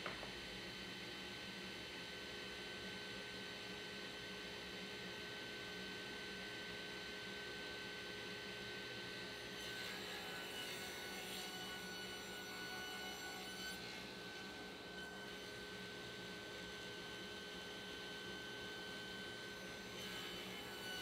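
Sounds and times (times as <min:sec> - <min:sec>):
table saw motor humming: 0:09.2 - 0:21.0.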